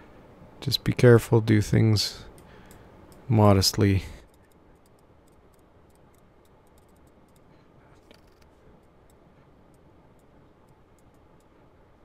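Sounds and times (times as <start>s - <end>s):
computer mouse clicks: 4.3s - 11.5s.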